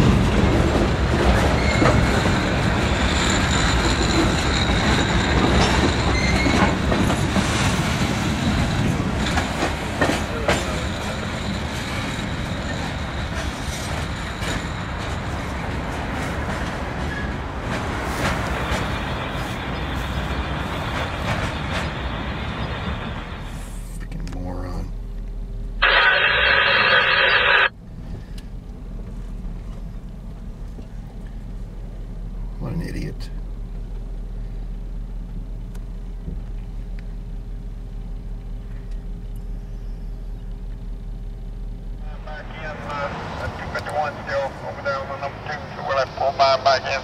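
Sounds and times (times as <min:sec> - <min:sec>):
train wheels clacking: 0:00.0 - 0:23.3
freight train wheels rumbling: 0:00.0 - 0:47.0.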